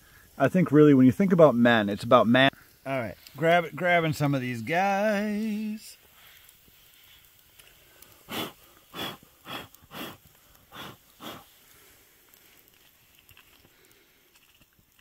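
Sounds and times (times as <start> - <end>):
man blowing short puffs: 7.9 - 12.0.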